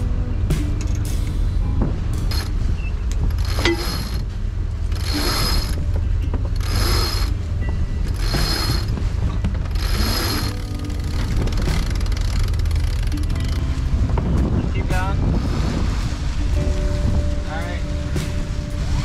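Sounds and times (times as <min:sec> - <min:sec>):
wind rumble on microphone: 0:00.0 - 0:19.0
winch pawls ratcheting: 0:02.2 - 0:02.5, 0:03.1 - 0:07.4, 0:08.0 - 0:13.7.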